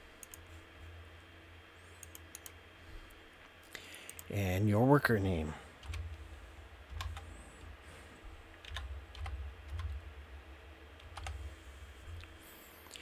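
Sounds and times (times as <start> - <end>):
faint low rumble: 4.5 - 13.0.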